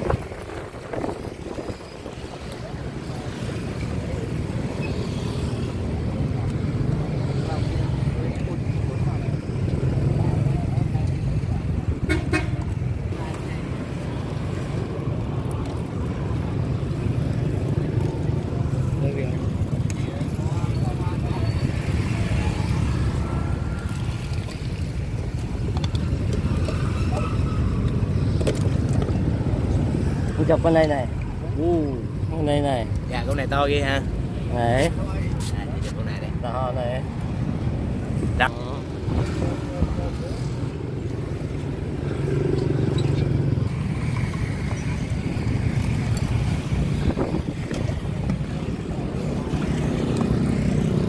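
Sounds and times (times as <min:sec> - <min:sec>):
wind buffeting microphone: 0:00.0 - 0:04.7, 0:43.3 - 0:51.0
motorbike engines running: 0:00.0 - 0:51.0
road traffic rumble: 0:00.0 - 0:51.0.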